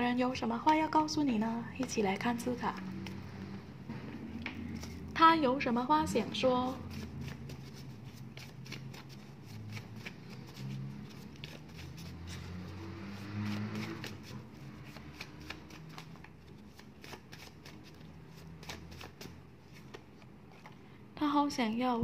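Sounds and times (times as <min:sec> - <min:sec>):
paper cards being shuffled: 0:04.6 - 0:05.1, 0:06.7 - 0:20.8.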